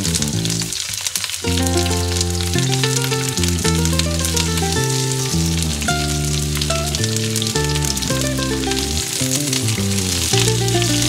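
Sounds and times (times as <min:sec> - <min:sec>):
onions sizzling in a wok: 0:00.0 - 0:11.0
background music with held notes: 0:01.5 - 0:11.0.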